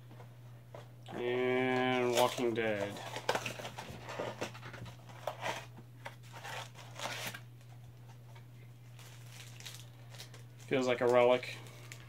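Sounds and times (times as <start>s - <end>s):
packaging tearing and crinkling: 1.7s - 7.4s, 9.0s - 12.0s.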